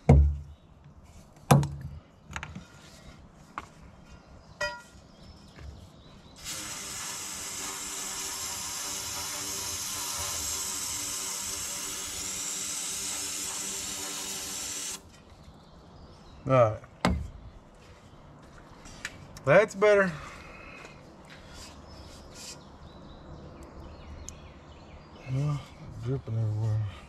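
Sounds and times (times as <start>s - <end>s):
aerosol can spraying hiss: 6.4s - 15.0s.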